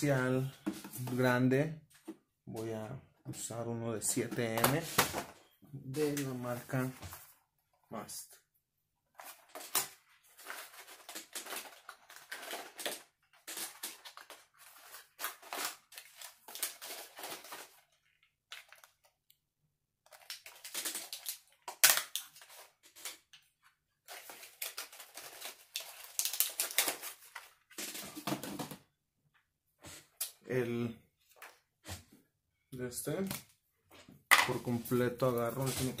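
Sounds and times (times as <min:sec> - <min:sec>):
packaging crinkling and tearing: 0:09.2 - 0:19.1, 0:20.1 - 0:28.3.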